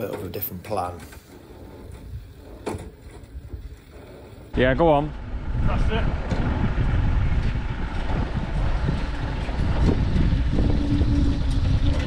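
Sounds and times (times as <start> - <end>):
tube rolling machine running: 1.3 - 12.0
wind rumbling on microphone: 1.3 - 12.0
steady hum: 4.0 - 12.0.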